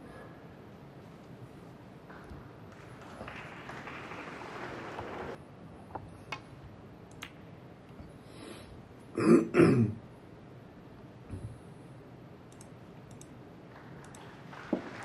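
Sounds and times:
person clearing throat: 0:09.2 - 0:10.0.

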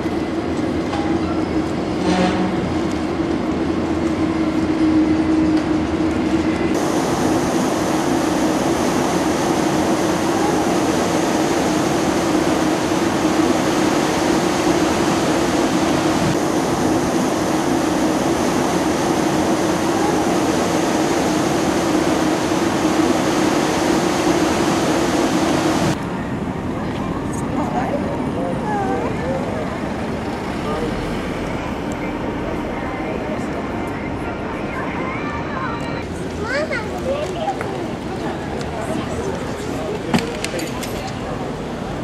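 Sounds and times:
moving vehicle running noise: 0:29.2 - 0:35.1.

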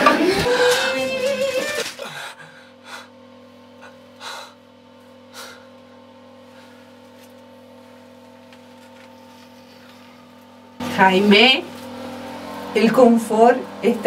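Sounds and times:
man breathing sharply: 0:02.0 - 0:04.7, 0:05.3 - 0:05.8, 0:06.4 - 0:07.0.

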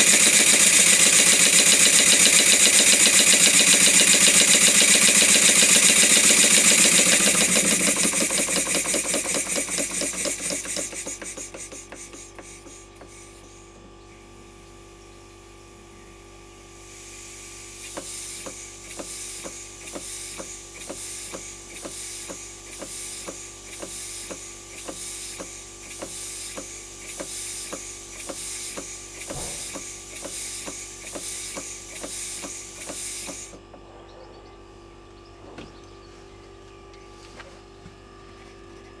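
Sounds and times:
model steam engine exhaust hiss: 0:00.0 - 0:13.6, 0:16.6 - 0:33.6
steady background hum: 0:01.0 - 0:39.0.

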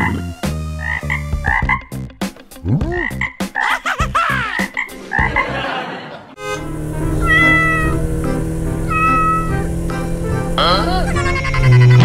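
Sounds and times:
frog croaks: 0:00.8 - 0:01.9, 0:02.9 - 0:03.8, 0:04.6 - 0:05.3.

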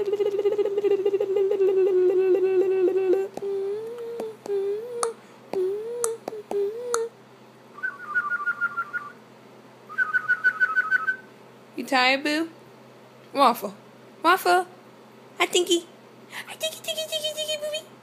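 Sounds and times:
warbling hum: 0:00.0 - 0:07.1
swooping hummed notes: 0:00.0 - 0:07.2.

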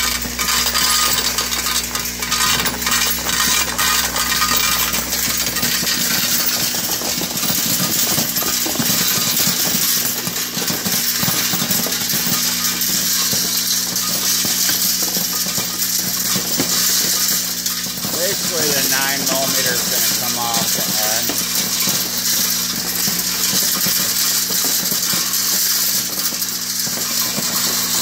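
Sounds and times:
machine hum: 0:16.0 - 0:23.1.

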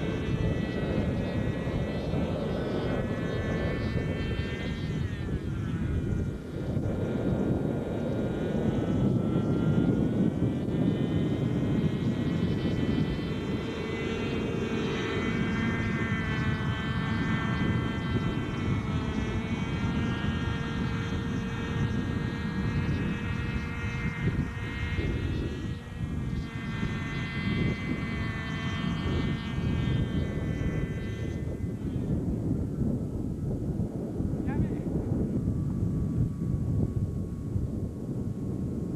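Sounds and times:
model helicopter engine whine: 0:00.0 - 0:38.9
low rumble: 0:29.0 - 0:38.9.

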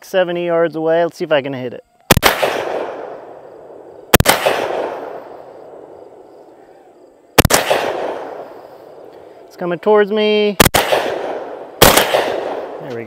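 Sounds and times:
gunshot echo: 0:02.1 - 0:03.4, 0:04.1 - 0:06.0, 0:07.4 - 0:09.1, 0:10.6 - 0:13.0
shotgun shots: 0:02.1 - 0:03.5, 0:04.1 - 0:06.0, 0:07.4 - 0:09.1, 0:10.6 - 0:13.0.

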